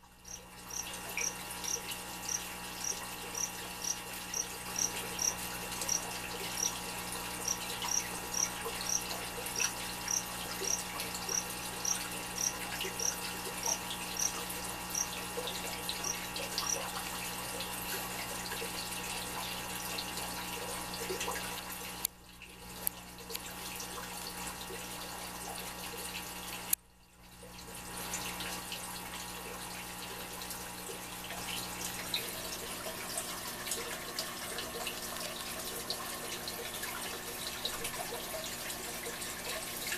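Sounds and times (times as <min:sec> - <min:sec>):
aquarium water trickling: 0:00.0 - 0:39.9
cricket chirping: 0:00.2 - 0:16.9.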